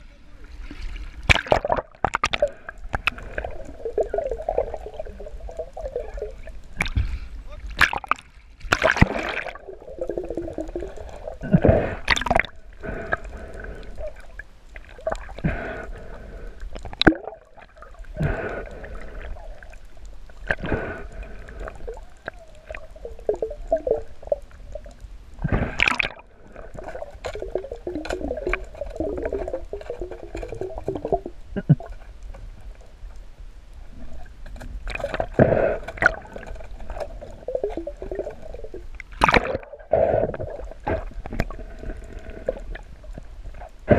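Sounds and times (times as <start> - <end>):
underwater water gurgling: 0.0 - 43.9
sharp knocks and splashes: 1.2 - 3.2, 7.8 - 9.6, 12.0 - 12.5, 25.4 - 32.0, 39.0 - 39.8.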